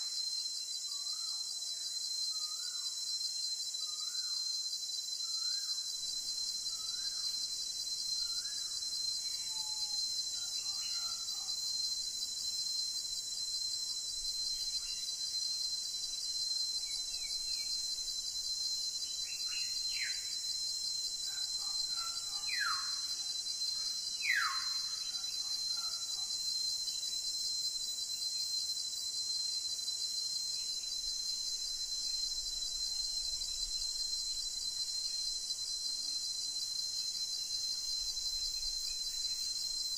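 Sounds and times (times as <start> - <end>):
high insect chorus: 0.0 - 39.9.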